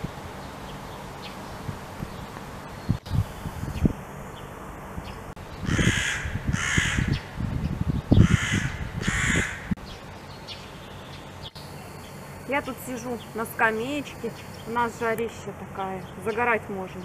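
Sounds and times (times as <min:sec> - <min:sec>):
crow cawing: 0:05.6 - 0:07.2, 0:08.2 - 0:09.8.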